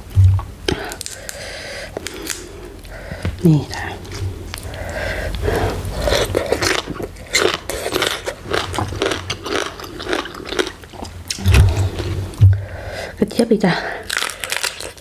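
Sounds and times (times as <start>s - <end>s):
crunchy chewing: 0.7s - 12.2s, 14.0s - 15.0s
low thump: 11.4s - 12.6s.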